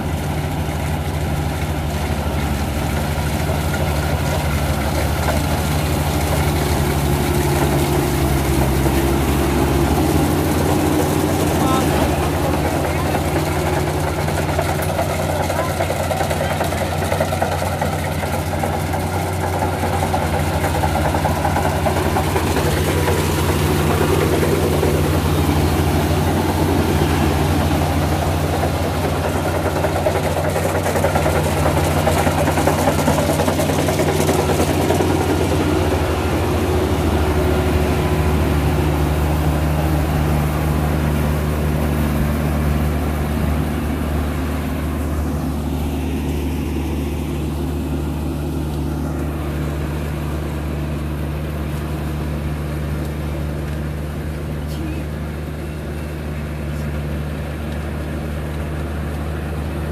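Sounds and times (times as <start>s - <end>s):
diesel engine humming: 0.0s - 59.9s
cutter and threshing drum clatter: 0.2s - 46.7s.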